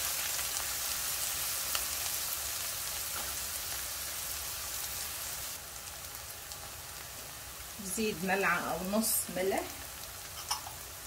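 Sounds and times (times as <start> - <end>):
vegetables sizzling in frying pan: 0.0 - 11.0.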